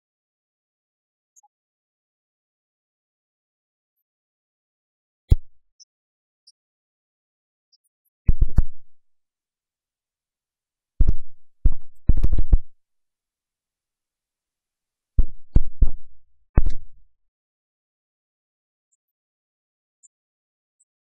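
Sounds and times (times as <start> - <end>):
sharp low thumps: 5.3 - 5.6, 15.2 - 17.0.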